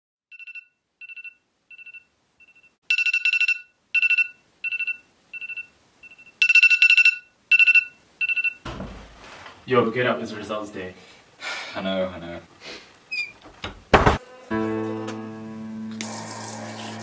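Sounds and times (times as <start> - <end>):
phone alarm beeping: 0.3 - 8.6.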